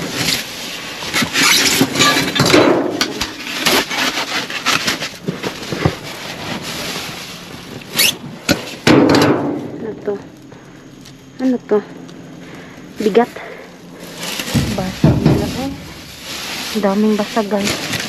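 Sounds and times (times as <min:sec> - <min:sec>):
plastic bags rustling: 0:00.0 - 0:08.8, 0:12.2 - 0:18.0
knocks in dumpster: 0:08.9 - 0:09.8, 0:14.5 - 0:16.0.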